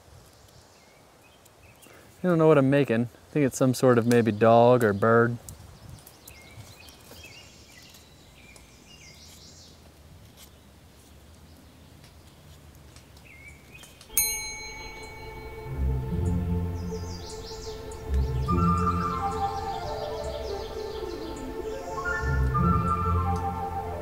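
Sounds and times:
bell-like chime: 14.1s - 16.4s
low musical pulse: 14.1s - 24.0s
music with sustained tones: 14.6s - 24.0s.

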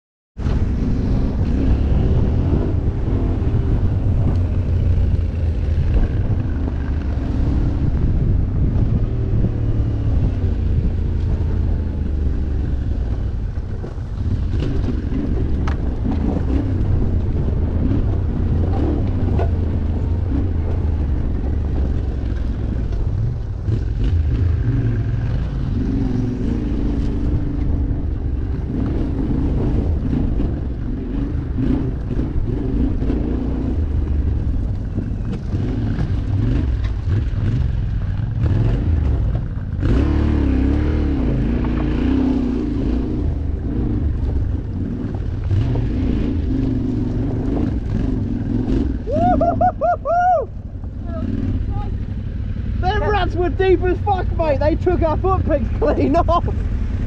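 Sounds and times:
motorcycle engine revving: 0.4s - 57.0s
wind buffeting microphone: 0.4s - 57.0s.

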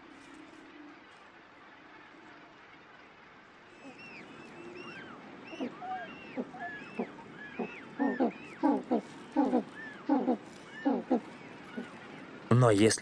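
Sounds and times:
higher rising-and-falling calls: 3.8s - 12.4s.

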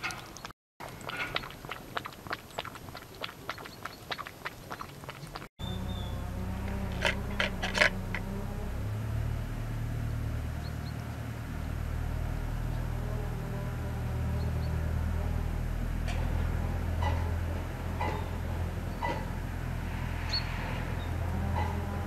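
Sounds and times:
cat chewing wet food: 0.1s - 5.5s
steady low hum: 5.6s - 22.0s.

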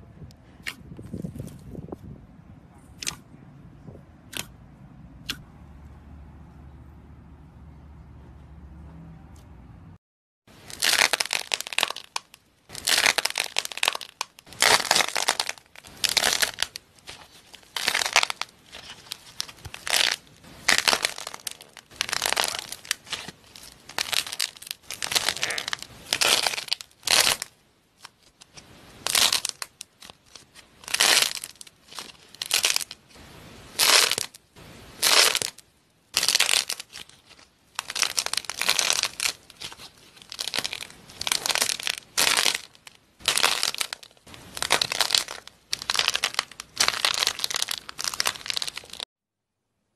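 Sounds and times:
slime crunching and crackling: 10.6s - 49.1s.

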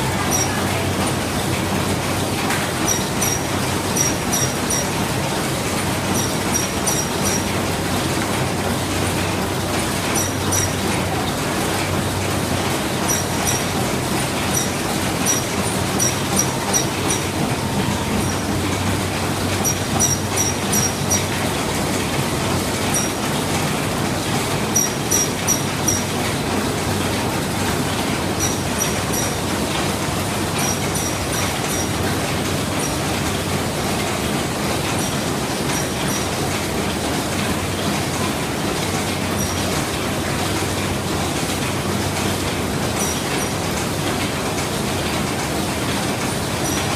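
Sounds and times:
machine hum and rattle: 0.0s - 46.9s
sharp high-pitched clicks: 2.9s - 4.9s, 6.1s - 7.5s, 14.4s - 17.4s.

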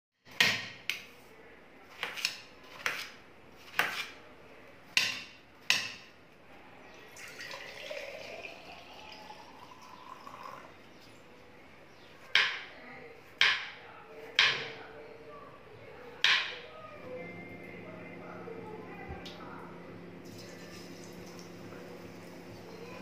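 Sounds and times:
knife cutting watermelon: 1.9s - 4.2s
juice pouring into glass jar: 7.1s - 10.7s.

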